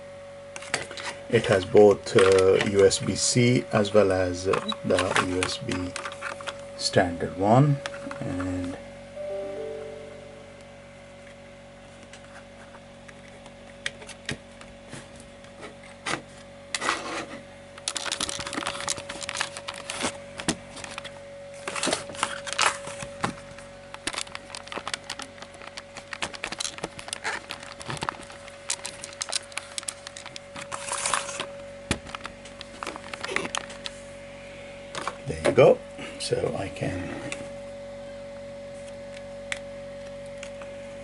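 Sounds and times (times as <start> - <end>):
steady thin tone: 9.2 - 10.8
rustling and crinkling of paper box: 14.7 - 33.8.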